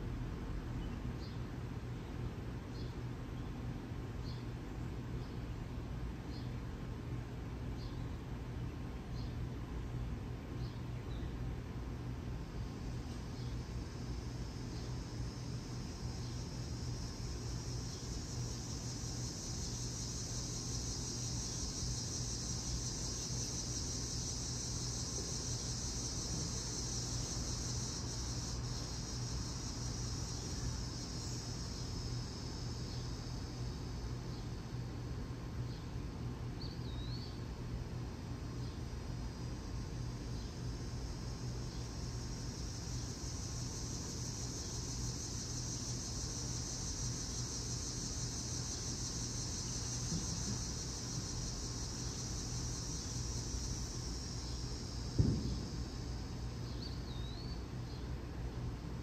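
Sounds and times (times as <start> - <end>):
low constant hum: 0.0 - 59.0
high-pitched insect chorus: 7.8 - 59.0
high hiss: 12.8 - 34.8, 39.3 - 58.0.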